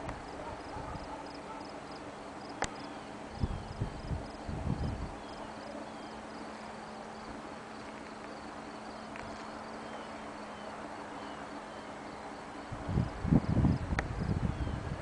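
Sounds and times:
insects chirping: 0.1s - 15.0s
wind gust on microphone: 3.4s - 5.2s, 12.7s - 15.0s.

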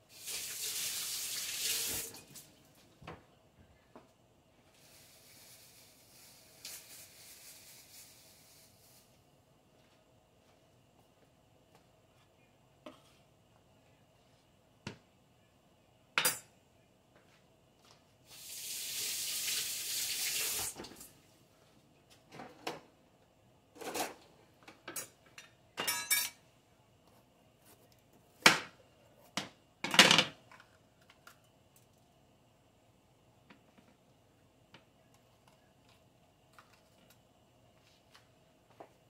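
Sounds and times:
kitchen tap running: 0.1s - 2.5s, 18.3s - 21.1s
kitchenware clattering on counter: 24.8s - 26.4s.

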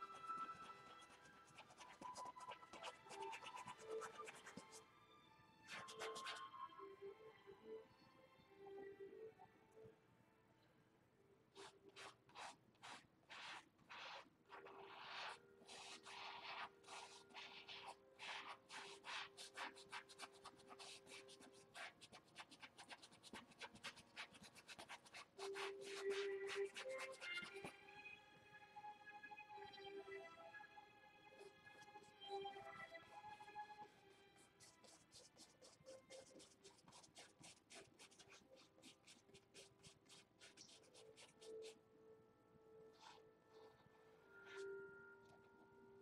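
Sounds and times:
paintbrush scratching on canvas: 0.0s - 4.8s, 5.6s - 6.5s, 11.5s - 27.7s, 34.1s - 41.8s, 42.9s - 43.8s, 44.4s - 44.8s.

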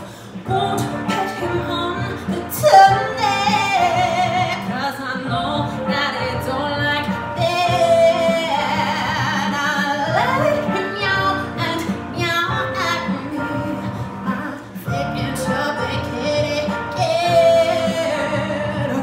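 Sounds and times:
background music: 0.0s - 19.0s
woman singing with vibrato: 0.0s - 19.0s.

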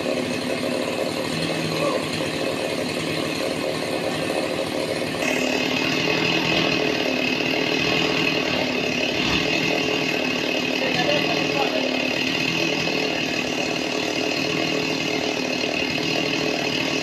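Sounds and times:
high saw whine: 0.0s - 17.0s
sawmill saw cutting log: 0.0s - 17.0s.

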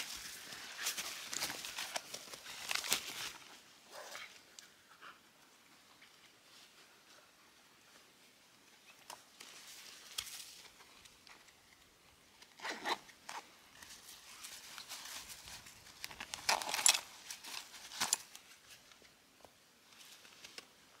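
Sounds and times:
rustling and scraping: 0.0s - 4.5s, 8.7s - 19.2s.

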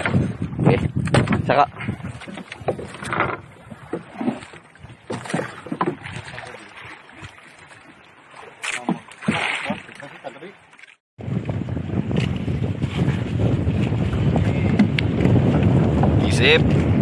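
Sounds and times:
knocks on wooden boat: 0.0s - 1.5s, 14.7s - 16.8s.

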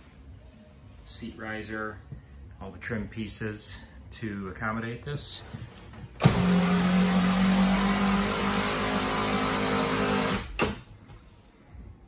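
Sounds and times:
electric seat motor humming: 6.2s - 10.5s.

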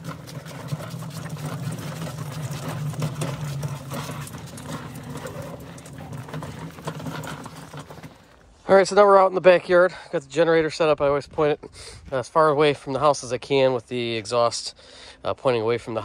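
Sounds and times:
wheels rumbling on icy ground: 0.0s - 8.7s.

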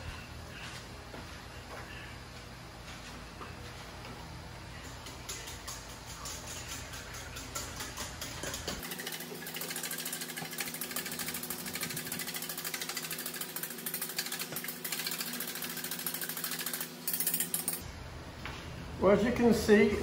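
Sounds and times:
whisk clicking in steel bowl: 4.9s - 17.8s.

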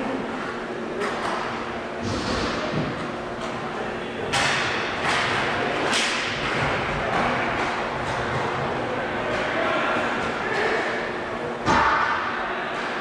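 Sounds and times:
sharp thuds echoing in a hall: 1.3s - 3.6s, 4.2s - 13.0s.

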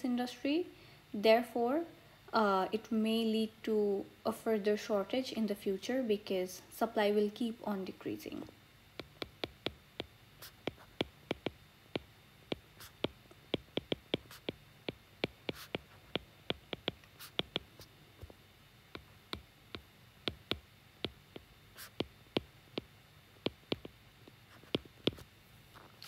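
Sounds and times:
stylus tapping on glass screen: 9.0s - 18.3s, 19.0s - 24.0s.

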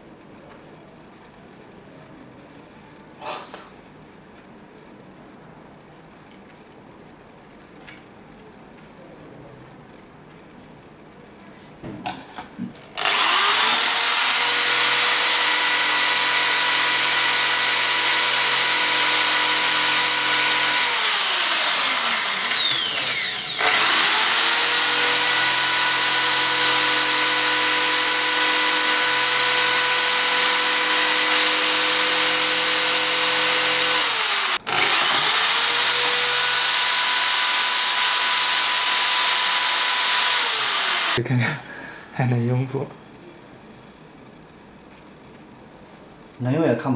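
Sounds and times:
electric drill boring into glass: 13.0s - 41.2s.

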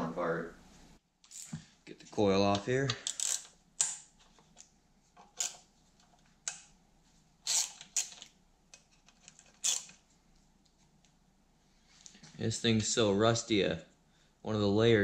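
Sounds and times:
hand ratchet clicking: 2.9s - 4.0s, 7.5s - 8.2s.

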